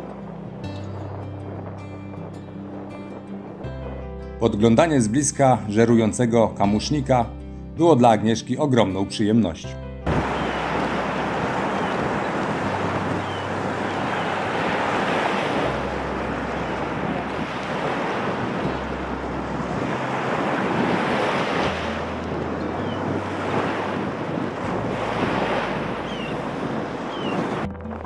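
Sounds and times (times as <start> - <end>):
wind rumbling on microphone: 0.0 - 5.7, 10.0 - 28.0
small waves breaking on sand: 10.1 - 27.6.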